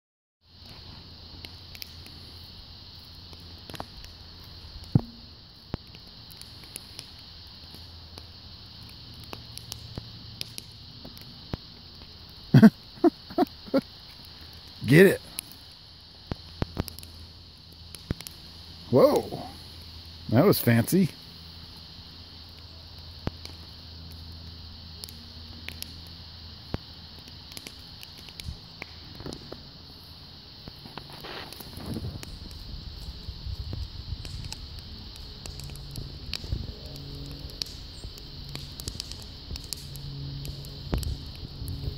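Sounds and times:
voice-like sounds: 0:18.9 - 0:19.6.

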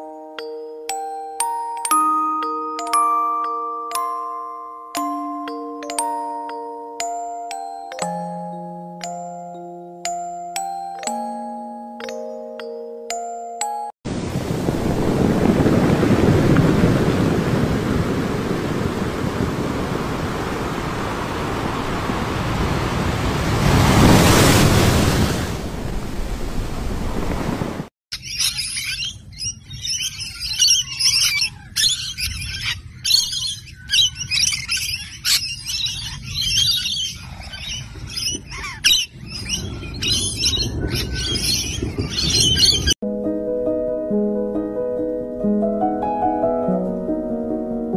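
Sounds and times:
wind: 0:00.0 - 0:47.9
sea rushing: 0:14.1 - 0:27.9
parrots screeching and chattering: 0:28.1 - 0:42.9.

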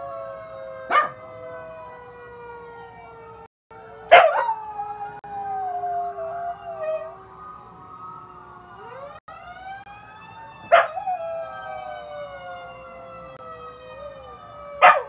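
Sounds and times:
fire truck siren wailing: 0:00.0 - 0:15.0
dog howling: 0:04.1 - 0:07.2.

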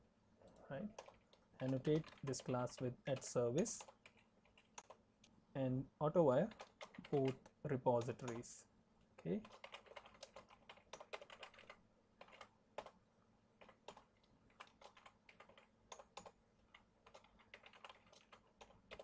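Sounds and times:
typing on computer keyboard: 0:01.0 - 0:05.0, 0:06.5 - 0:08.4, 0:09.2 - 0:13.0, 0:13.6 - 0:19.0.

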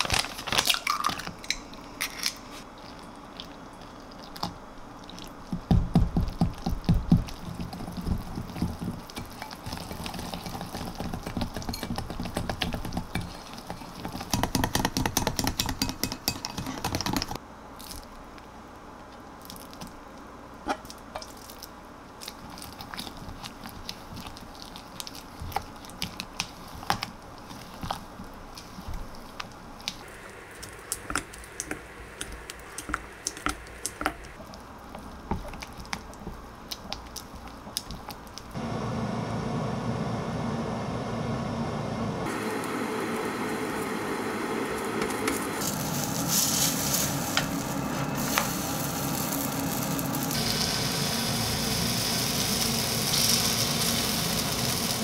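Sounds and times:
wire whisk beating batter: 0:05.4 - 0:17.4.

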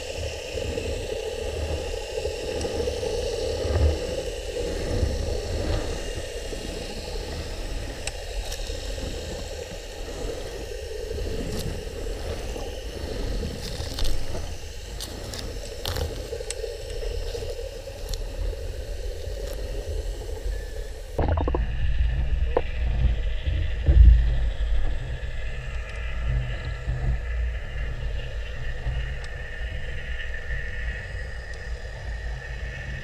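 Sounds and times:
underwater low rumble: 0:00.1 - 0:33.0.

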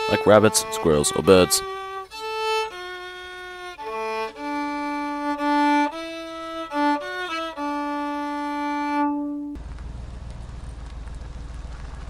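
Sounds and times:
solo violin melody: 0:00.0 - 0:09.6.

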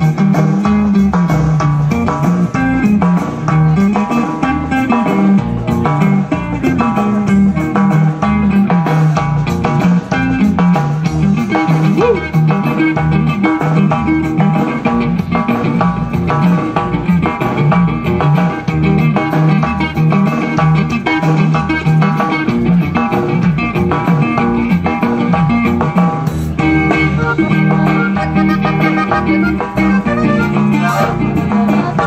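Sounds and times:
drums: 0:00.0 - 0:32.0
live band with plucked strings: 0:00.0 - 0:32.0.

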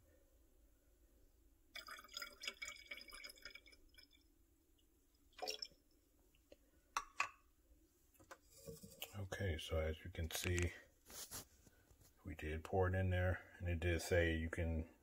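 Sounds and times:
syrup trickling into bottle: 0:01.8 - 0:04.2, 0:05.4 - 0:05.8.

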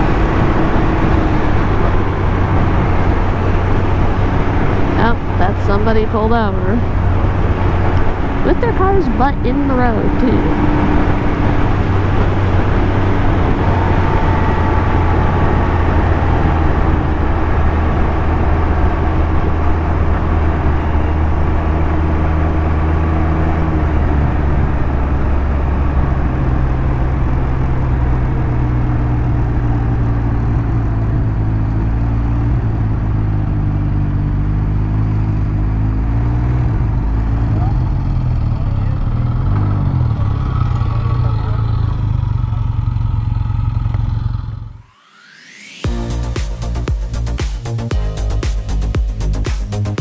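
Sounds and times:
motor vehicle engine drone: 0:00.0 - 0:50.0
road and wind rush: 0:00.0 - 0:50.0.

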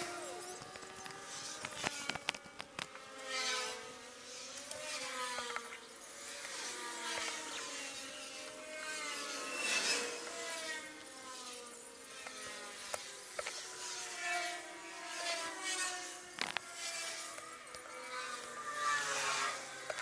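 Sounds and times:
small clicks: 0:00.0 - 0:03.6, 0:16.4 - 0:18.6.

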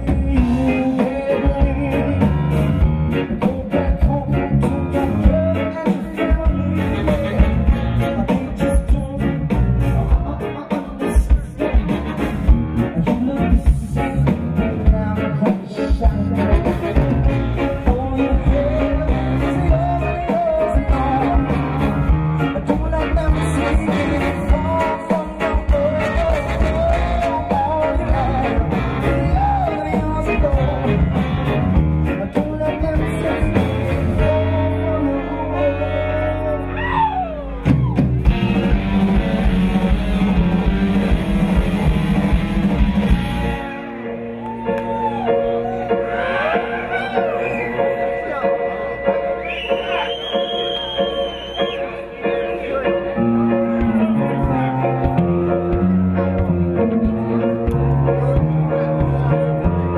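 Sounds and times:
drum kit: 0:00.0 - 0:34.8, 0:36.8 - 0:43.9, 0:53.6 - 0:59.9
man singing lead: 0:00.0 - 0:40.7
electric bass: 0:00.0 - 0:59.9
electric guitar: 0:00.0 - 0:59.9
keyboard: 0:00.0 - 0:59.9.

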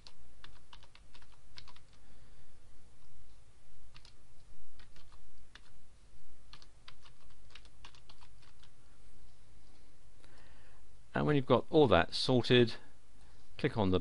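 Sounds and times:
keyboard typing: 0:00.0 - 0:02.0, 0:03.9 - 0:05.8, 0:06.5 - 0:08.8
low steady hum: 0:00.0 - 0:14.0.

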